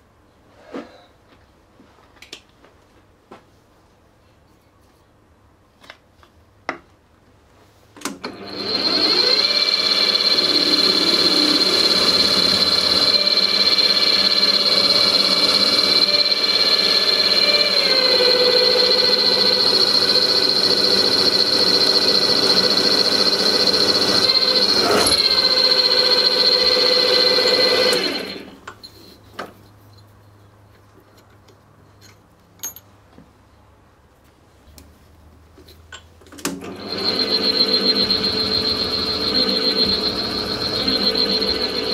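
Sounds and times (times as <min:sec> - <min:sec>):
drill press high whine: 0:08.2 - 0:28.7, 0:36.6 - 0:41.9.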